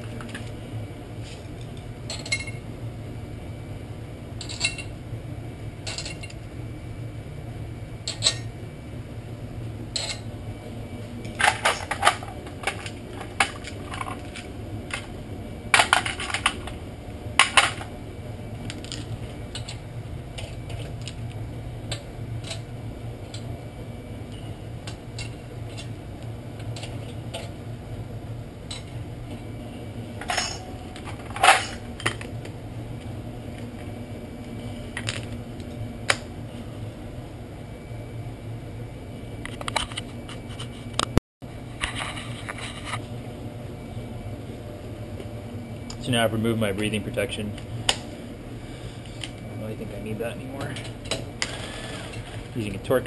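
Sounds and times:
steady low hum: 0.0s - 53.0s
metal tools clinking: 2.1s - 2.6s, 4.4s - 4.9s, 5.9s - 6.4s, 30.2s - 30.7s.

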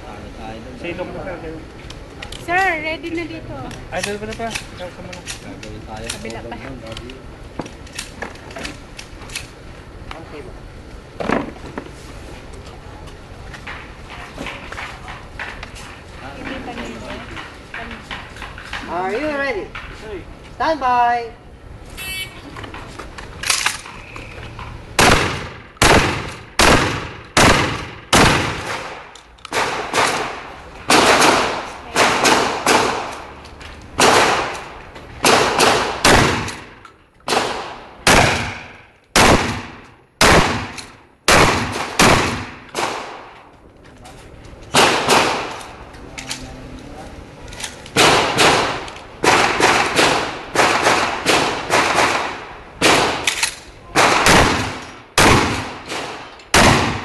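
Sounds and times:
shotgun shots: 25.0s - 33.3s, 34.0s - 43.4s, 44.7s - 45.6s, 48.0s - 57.0s.

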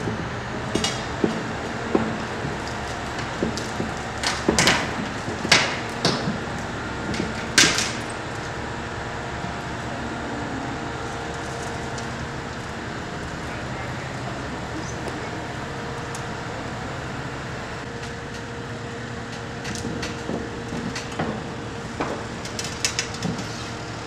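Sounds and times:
steady background rumble: 0.0s - 18.0s.

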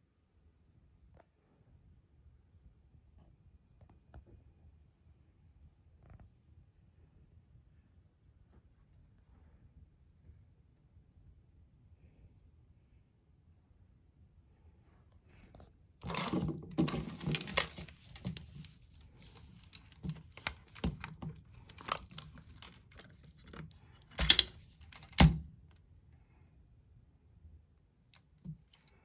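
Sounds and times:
rustling: 16.0s - 25.2s.

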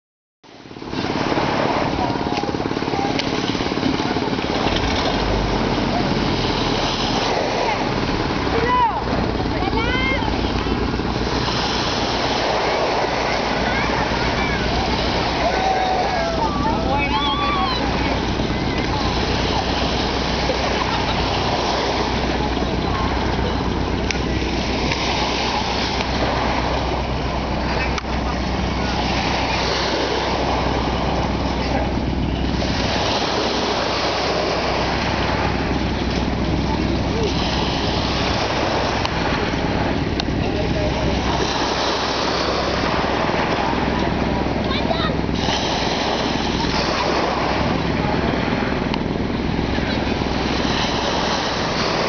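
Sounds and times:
low wind rumble on microphone: 0.5s - 52.0s
small waves washing onto sand: 0.5s - 52.0s
faint children's voices: 12.1s - 32.6s, 38.2s - 52.0s.

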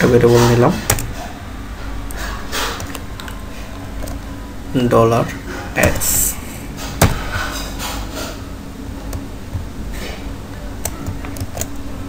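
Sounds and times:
steady low hum: 0.0s - 12.0s
keyboard and mouse clicks: 0.9s - 1.2s, 2.8s - 3.4s, 10.8s - 11.8s.

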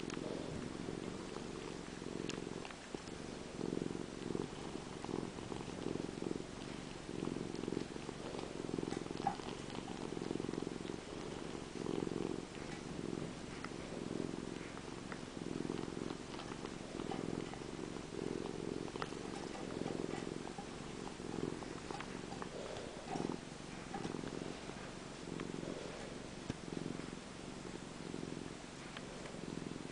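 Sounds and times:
cat purring: 0.0s - 29.9s.

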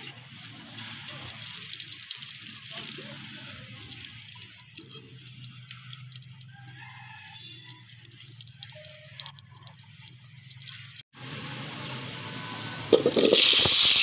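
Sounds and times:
oil crackling in a pot: 0.0s - 14.0s.

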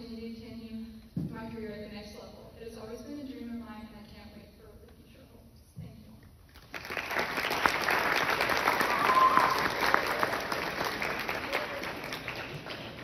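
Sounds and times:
audience applauding: 6.6s - 13.0s.

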